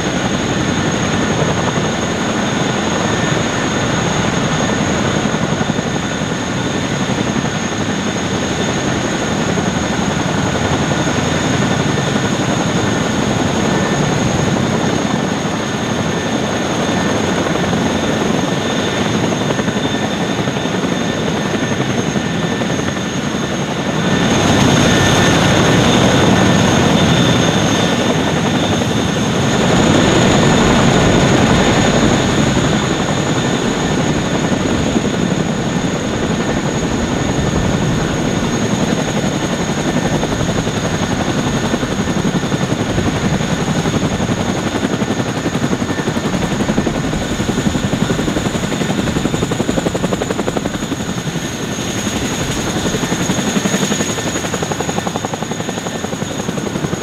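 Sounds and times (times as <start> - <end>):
helicopter rotor noise: 0.0 - 57.0
high engine whine: 23.8 - 53.7.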